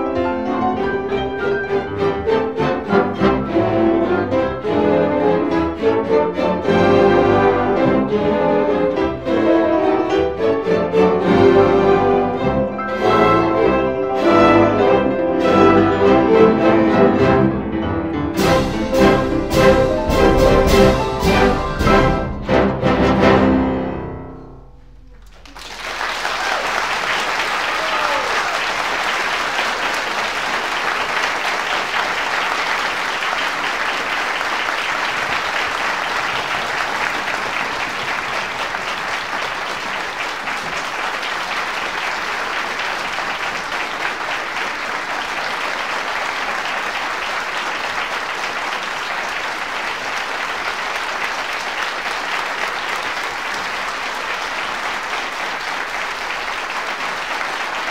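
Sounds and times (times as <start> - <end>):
orchestral chord ringing: 6.5 - 26.0
audience applauding: 18.4 - 23.8, 25.0 - 57.9.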